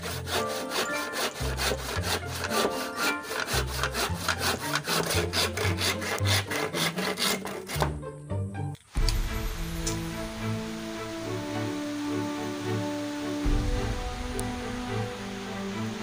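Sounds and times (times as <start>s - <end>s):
handsaw cutting bamboo: 0.0s - 8.0s.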